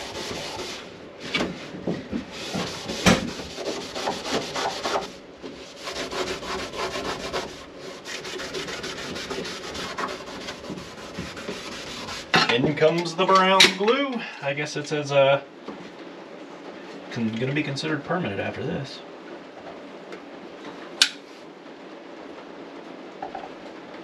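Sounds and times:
abrasive pad rubbing countertop: 0.0s - 12.4s.

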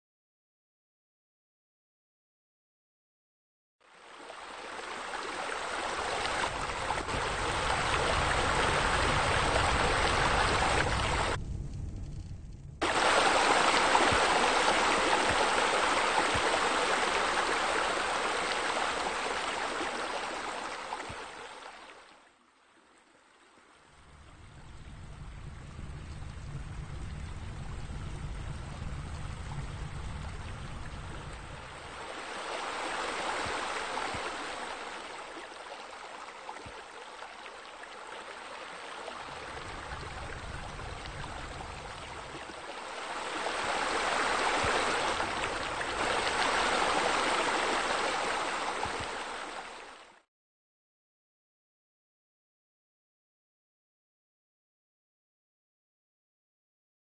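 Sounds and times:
water rushing and splashing: 3.8s - 11.4s, 12.8s - 50.2s.

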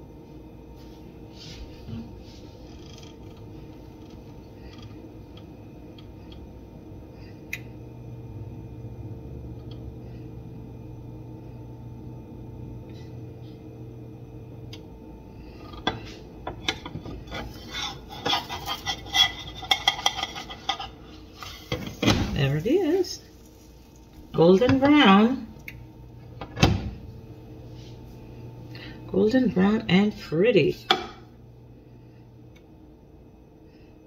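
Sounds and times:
quiet steady hum: 0.0s - 34.0s
metal spatula scraping frying pan: 17.2s - 22.0s.

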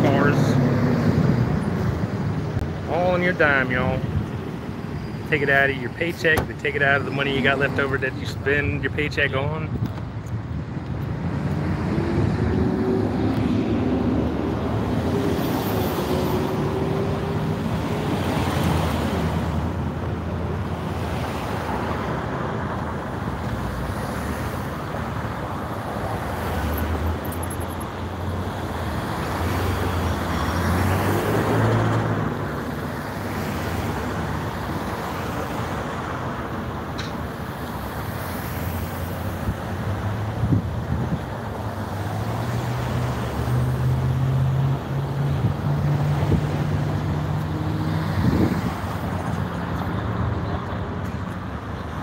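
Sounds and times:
loud vehicle passing: 0.0s - 2.5s, 11.1s - 19.9s, 28.2s - 36.7s, 37.9s - 51.0s
road traffic noise: 0.0s - 52.0s.

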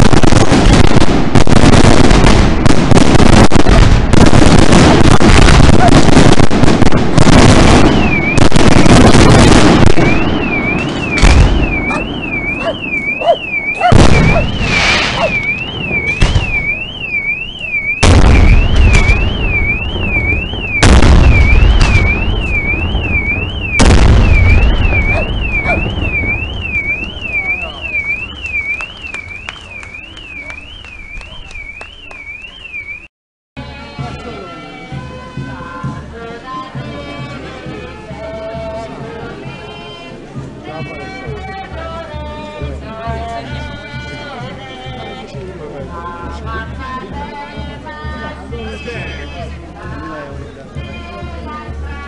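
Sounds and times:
fireworks booming and crackling: 0.0s - 32.9s
car alarm warbling: 7.9s - 8.5s, 9.3s - 33.1s.

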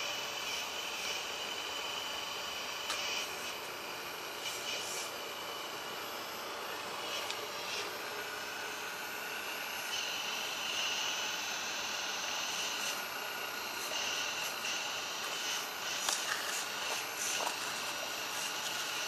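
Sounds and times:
hydraulic pump whining: 0.0s - 19.0s
hydraulic hiss: 4.4s - 5.2s, 9.7s - 19.0s.

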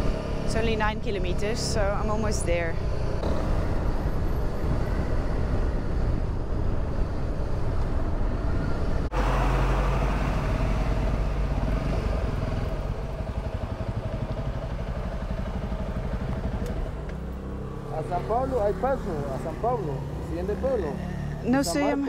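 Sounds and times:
motorcycle engine running: 10.0s - 22.0s
motorcycle engine idling: 11.9s - 21.4s.

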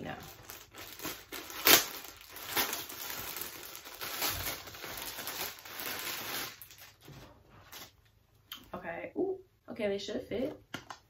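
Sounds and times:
plastic bag rustling: 0.0s - 8.0s.

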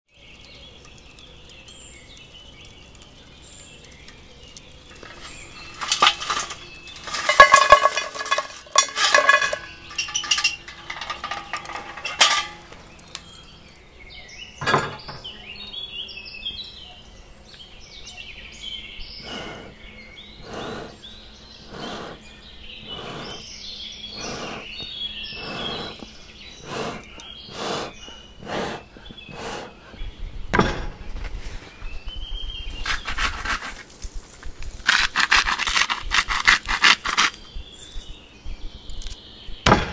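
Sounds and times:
charcoal clinking against iron pan: 2.9s - 13.4s
hand bellows puffing air: 19.2s - 19.7s, 20.4s - 21.0s, 21.6s - 22.2s, 22.8s - 23.4s, 24.1s - 24.8s, 25.4s - 26.0s, 26.6s - 29.8s.

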